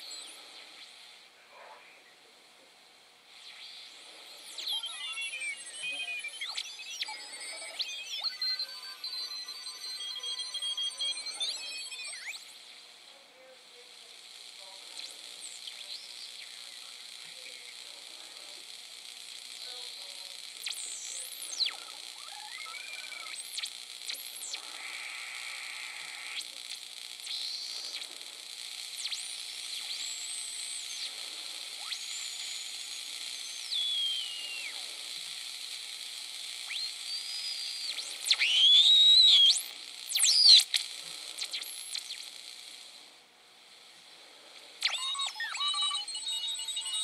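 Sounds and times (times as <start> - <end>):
radio band hiss: 0.0 - 47.0
steady radio tones: 0.0 - 47.0
whistling heterodyne tones: 33.7 - 34.6.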